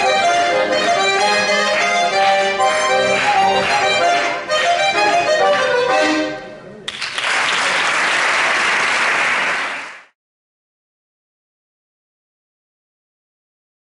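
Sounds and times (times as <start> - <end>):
button accordions playing: 0.0 - 6.7
audience applause: 6.9 - 10.2.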